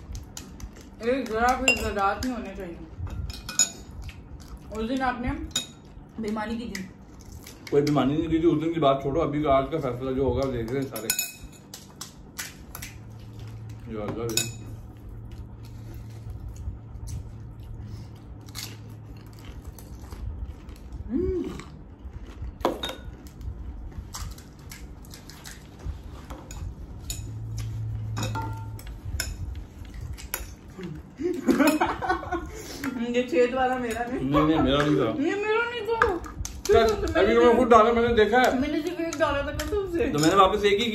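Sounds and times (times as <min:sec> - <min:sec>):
spoons and crockery clinking: 0:10.8 - 0:11.8.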